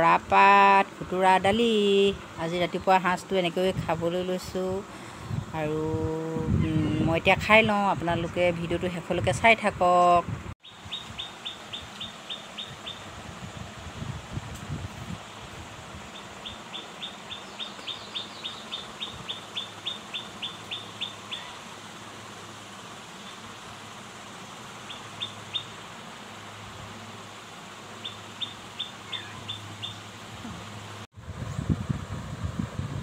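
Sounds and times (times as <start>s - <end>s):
bird chirping: 10.6s - 13.0s, 16.1s - 21.7s, 28.0s - 30.1s.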